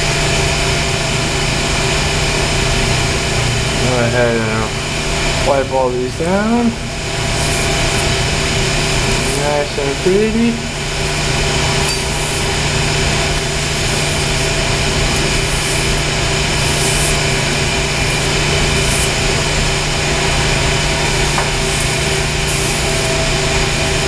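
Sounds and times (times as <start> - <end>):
machinery drone: 0.0 - 24.0
cloth wiping pipe: 12.1 - 24.0.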